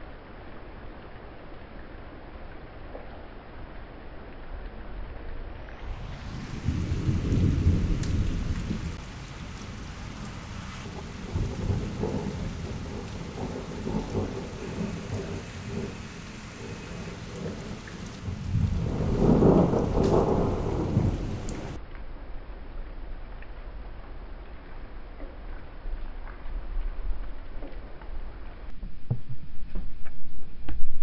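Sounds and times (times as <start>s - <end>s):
steady rain: 0.0s - 28.7s
thunder rumbling: 5.8s - 21.8s.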